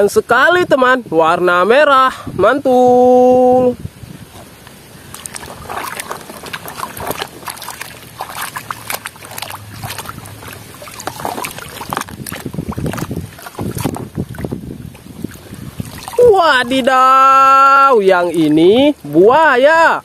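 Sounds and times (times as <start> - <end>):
water sloshing in a plastic tub: 4.0 - 19.9.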